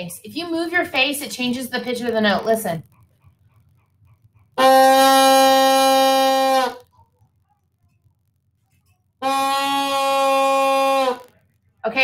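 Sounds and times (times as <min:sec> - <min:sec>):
buzzy bassoon reed note: 0:04.6 - 0:06.8, 0:09.2 - 0:11.3.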